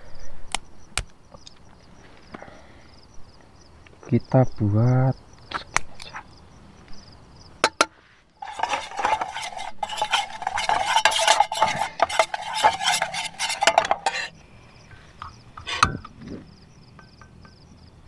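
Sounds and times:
metal spoon scraping frying pan: 8.4s - 16.2s.

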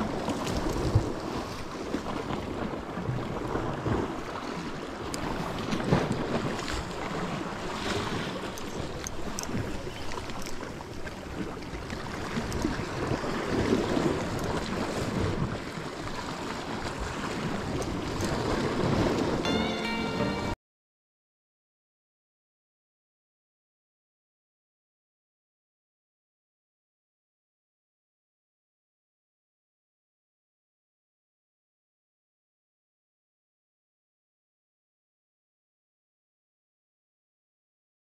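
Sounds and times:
wind rumbling on microphone: 0.0s - 19.5s
sea waves washing against rocks: 0.0s - 20.5s
faint clicks: 8.4s - 12.8s.

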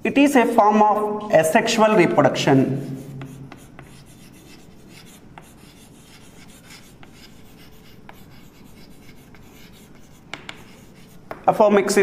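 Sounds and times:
chalk scratching on chalkboard: 2.6s - 11.6s
chalk tapping on board: 2.9s - 11.6s.

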